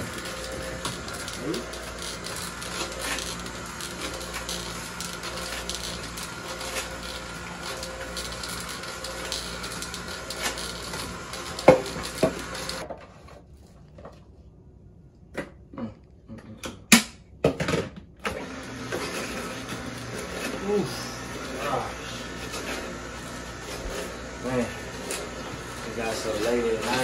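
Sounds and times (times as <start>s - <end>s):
juicer motor whirring: 0.0s - 12.9s, 18.2s - 27.0s.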